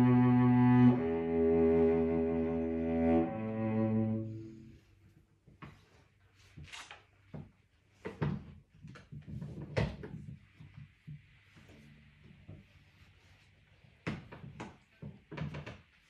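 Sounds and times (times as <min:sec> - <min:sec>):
cello bowed notes: 0:00.0 - 0:05.1.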